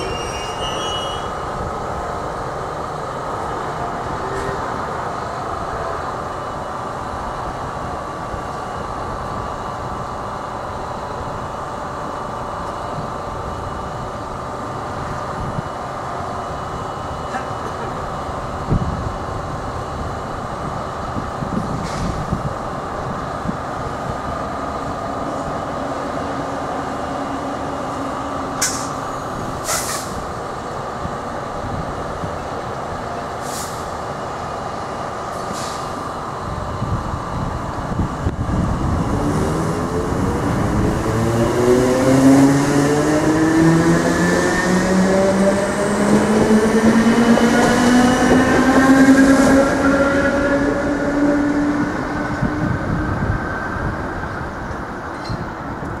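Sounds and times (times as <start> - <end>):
electric train humming: 0.0 - 56.0
short air hisses: 29.6 - 30.2, 33.4 - 33.9, 35.5 - 36.0.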